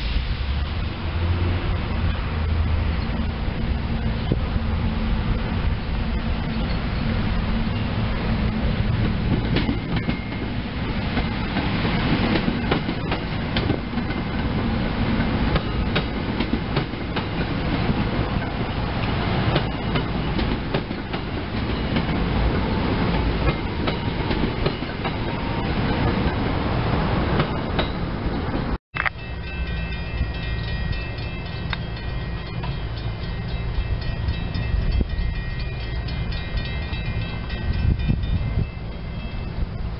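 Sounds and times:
train cars rumbling: 0.0 - 39.9
wheels clicking over rail joints: 8.4 - 26.6.

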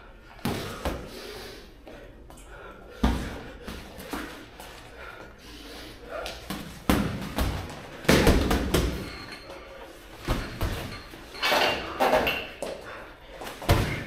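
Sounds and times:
boxing gloves thudding: 3.0 - 4.4, 6.4 - 9.2, 10.2 - 11.0, 13.4 - 14.0.

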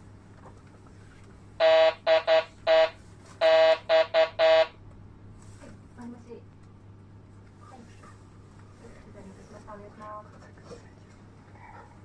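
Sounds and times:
electronic alarm beeping: 1.6 - 4.8.

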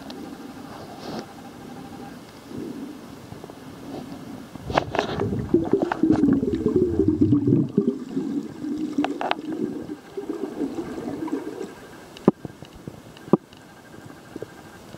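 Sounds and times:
underwater gurgling and bubbling: 3.7 - 12.6.

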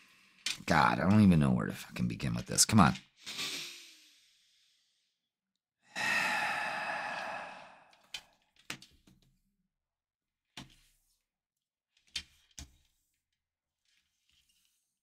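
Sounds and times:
long breathy sigh: 5.9 - 8.3.

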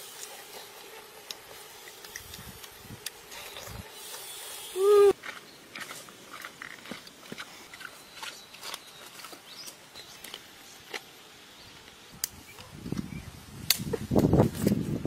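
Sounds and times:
faint outdoor ambience: 0.0 - 15.0.

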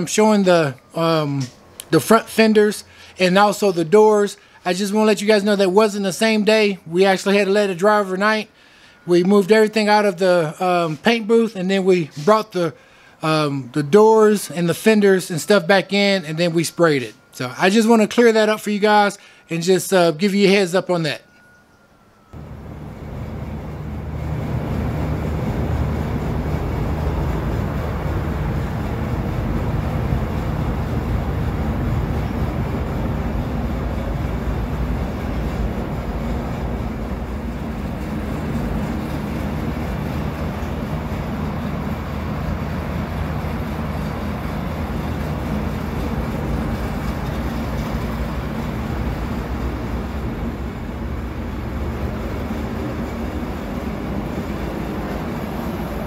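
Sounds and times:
low mechanical rumbling drone: 22.3 - 56.0.

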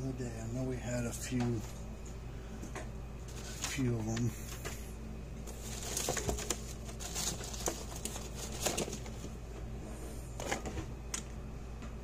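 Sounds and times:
steady low hum: 0.0 - 12.0
rummaging through small parts: 3.3 - 3.9, 5.4 - 9.3.

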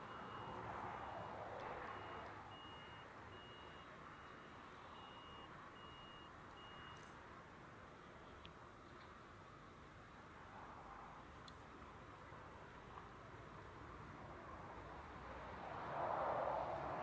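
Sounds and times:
faint jet engine rush: 14.0 - 17.0.

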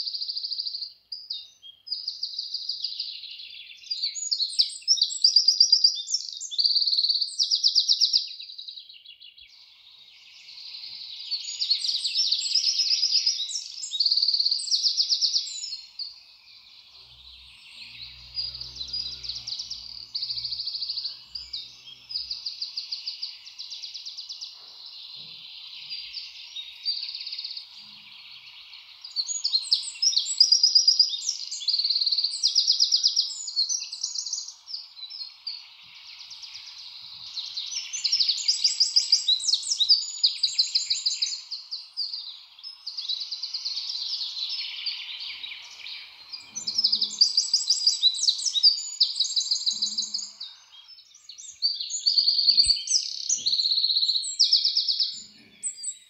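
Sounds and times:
chorus of chirping trills: 9.2 - 56.0
distant calls buzzing: 16.6 - 23.1.

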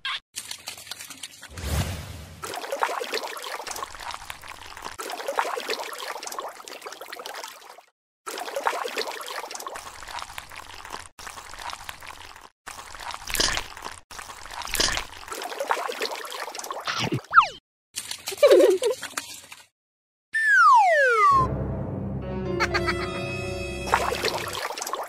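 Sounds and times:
loud wet splashes: 0.4 - 17.2, 23.8 - 25.0
mud and water sloshing: 0.4 - 17.3, 18.0 - 19.7, 23.9 - 25.0.

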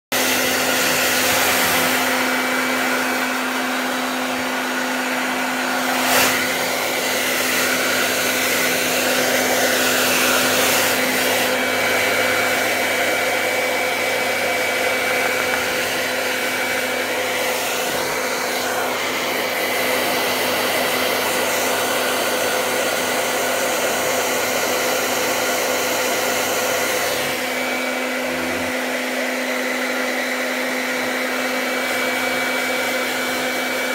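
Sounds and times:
hair dryer blowing: 0.1 - 33.9.

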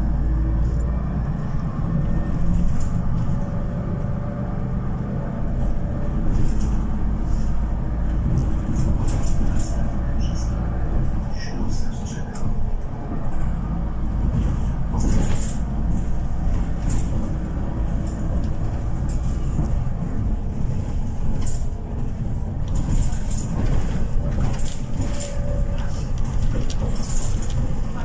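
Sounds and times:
bus engine and road rumble: 0.0 - 28.0
short rattles and knocks: 13.1 - 28.0.

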